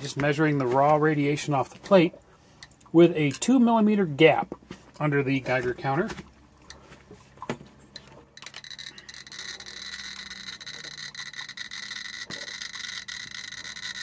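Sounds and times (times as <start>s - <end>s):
geiger counter clicks: 8.0s - 14.0s.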